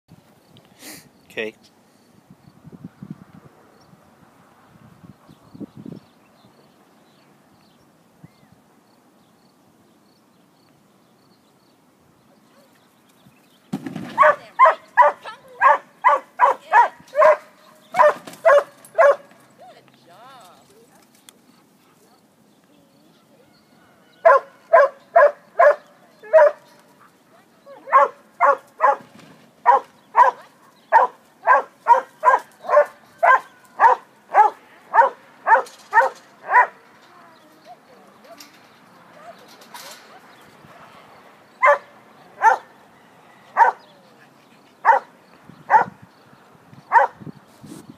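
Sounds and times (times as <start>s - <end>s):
dog barking: 14.2s - 19.3s, 24.2s - 26.7s, 27.8s - 29.0s, 29.6s - 36.8s, 41.6s - 42.7s, 43.5s - 43.8s, 44.8s - 45.1s, 45.7s - 46.0s, 46.9s - 47.2s.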